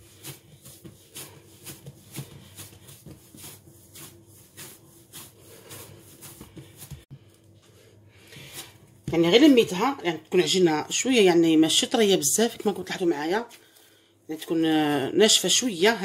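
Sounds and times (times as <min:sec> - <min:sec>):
hands kneading dough: 0:00.0 - 0:10.6.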